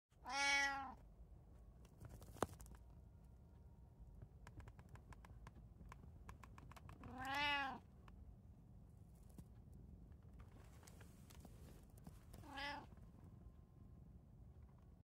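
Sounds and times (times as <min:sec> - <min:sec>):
cat meowing: 0:00.2 - 0:01.0, 0:07.0 - 0:07.8, 0:12.4 - 0:12.9
faint clicks and taps: 0:04.2 - 0:08.2.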